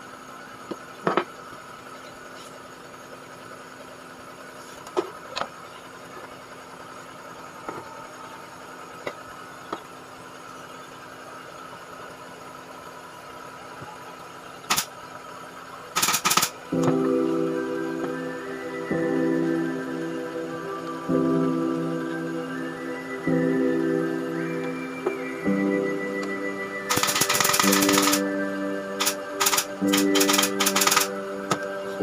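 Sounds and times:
steady mechanical hum: 0:00.0 - 0:32.0
nail gun firing: 0:14.7 - 0:14.9, 0:16.0 - 0:16.6, 0:26.9 - 0:28.2, 0:29.0 - 0:31.1.

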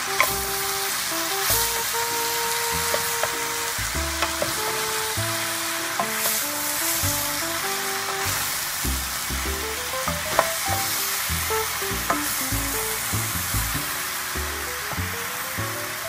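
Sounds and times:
background music: 0:00.0 - 0:16.0
mushrooms sizzling in oil: 0:00.0 - 0:16.0
wooden spoon knocking on pan: 0:02.8 - 0:03.4, 0:04.2 - 0:04.8, 0:06.0 - 0:06.4, 0:10.1 - 0:11.0.

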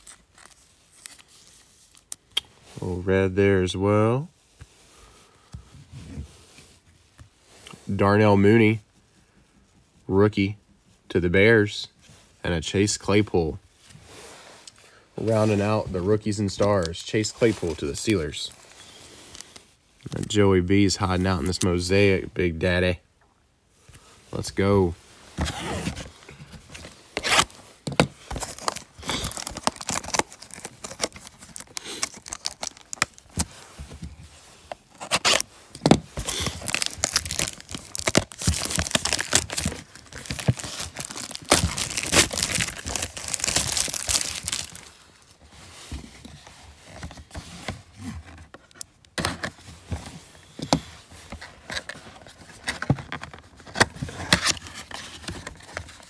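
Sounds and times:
plastic wrap crinkling and ripping: 0:27.1 - 0:33.5, 0:34.7 - 0:45.1.

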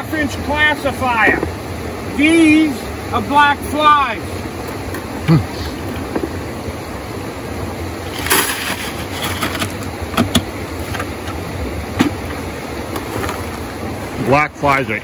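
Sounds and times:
rushing river water: 0:00.0 - 0:15.0.

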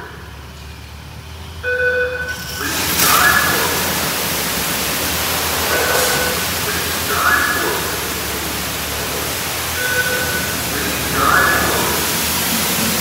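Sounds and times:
water spray hissing: 0:02.3 - 0:13.0.

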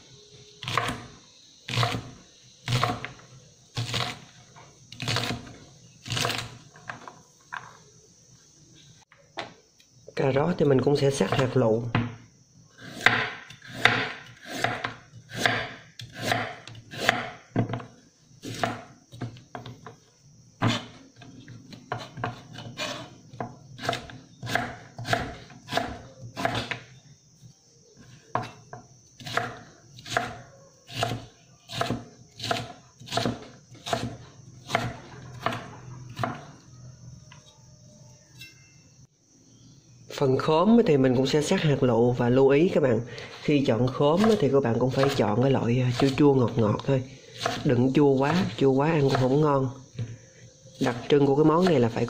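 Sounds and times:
knife chopping on wooden board: 0:00.6 - 0:01.0, 0:12.9 - 0:19.8, 0:20.6 - 0:21.0, 0:21.9 - 0:26.8, 0:29.2 - 0:36.4, 0:44.2 - 0:45.2.

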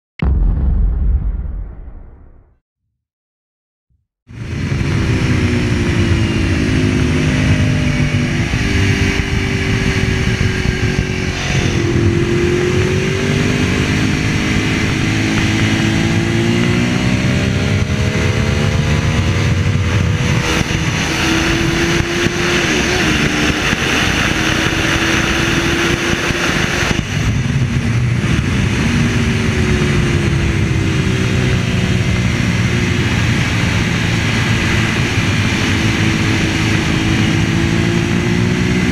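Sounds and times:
motorcycle engine at racing speed: 0:04.3 - 0:38.9
wind rushing: 0:07.5 - 0:32.2.

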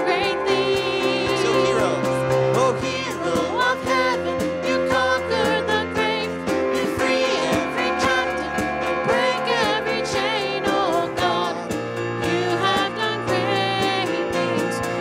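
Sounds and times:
keyboard: 0:00.0 - 0:15.0
singers: 0:00.0 - 0:15.0.

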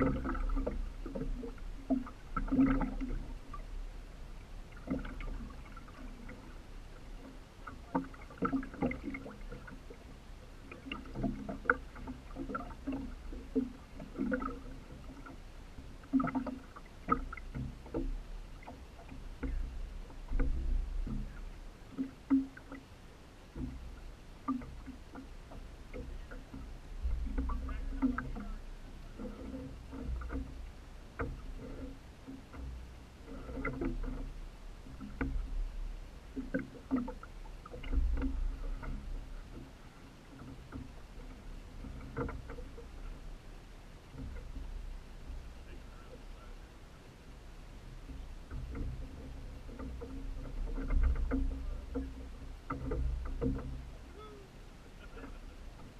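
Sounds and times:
water splashing against boat hull: 0:00.0 - 0:55.9.

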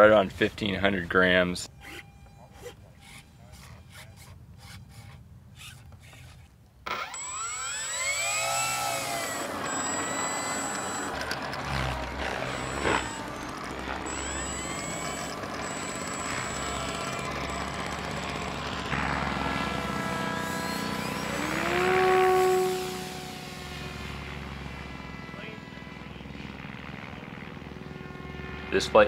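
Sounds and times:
electric motor and propeller whine: 0:01.5 - 0:29.0
handling clicks and rubs: 0:01.8 - 0:07.0.

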